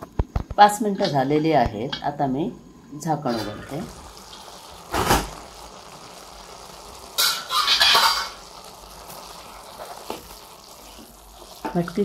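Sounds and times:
beans sizzling in a pan: 0:03.2 - 0:12.0
spatula scraping a pan: 0:07.2 - 0:08.5.

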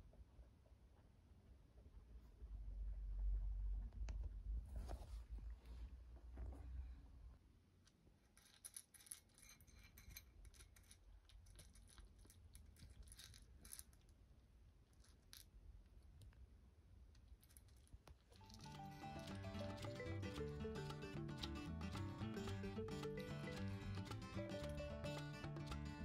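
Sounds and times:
kitten crunching dry kibble: 0:07.9 - 0:19.6
background music: 0:18.4 - 0:26.0.

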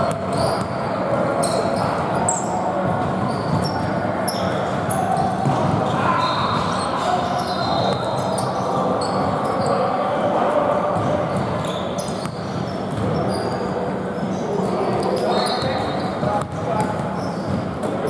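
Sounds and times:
shoe squeaks: 0:00.0 - 0:00.8, 0:01.4 - 0:02.6, 0:03.2 - 0:09.9, 0:11.3 - 0:17.7
players' voices: 0:00.0 - 0:18.0
basketball bouncing: 0:05.4 - 0:05.9.

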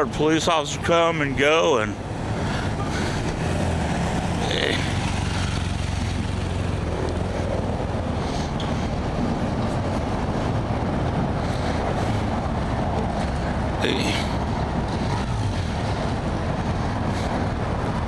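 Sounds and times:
street traffic: 0:00.0 - 0:18.0
motorcycle riding past: 0:02.0 - 0:09.4.

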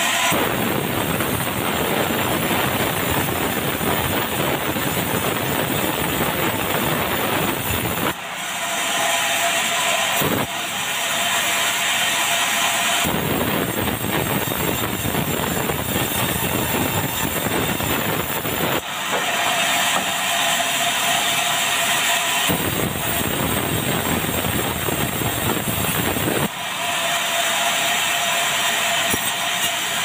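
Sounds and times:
circular saw blade sawing logs: 0:00.0 - 0:30.0.

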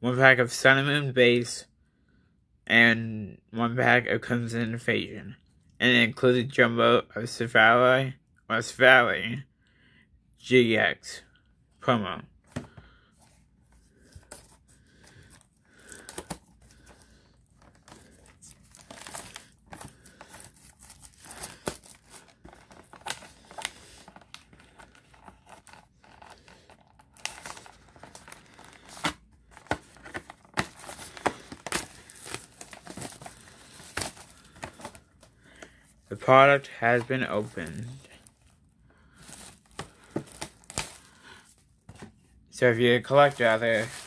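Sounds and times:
plastic crinkling and tearing: 0:15.3 - 0:35.7, 0:39.2 - 0:41.5, 0:43.0 - 0:44.0.

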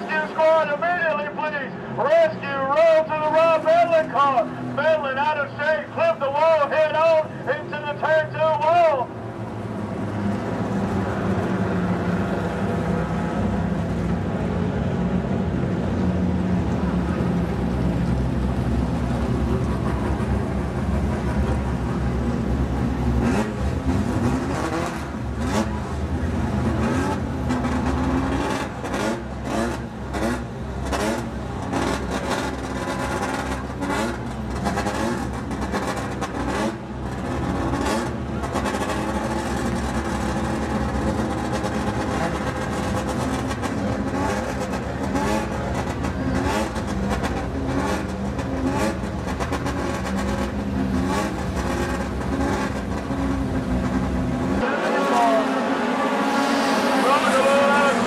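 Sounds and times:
people's voices: 0:00.0 - 0:09.1, 0:54.6 - 0:58.0.

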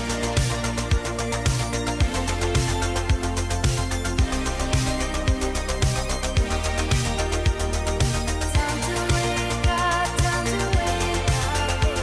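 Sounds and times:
background music with beat: 0:00.0 - 0:12.0
kick drum: 0:00.4 - 0:08.7.

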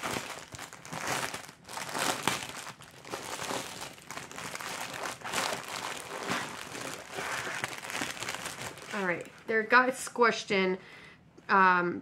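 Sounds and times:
packaging crinkling and rustling: 0:00.0 - 0:09.5.

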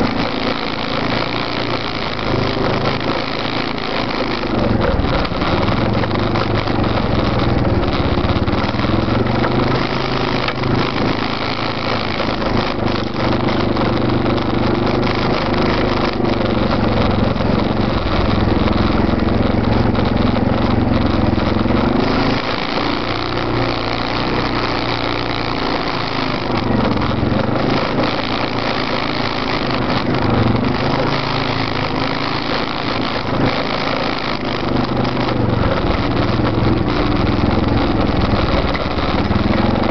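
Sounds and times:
atv engines revving: 0:00.0 - 0:39.9.

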